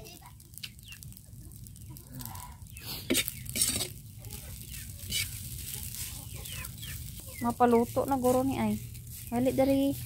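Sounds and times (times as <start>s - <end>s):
metal spatula scraping wok: 2.9s - 10.0s.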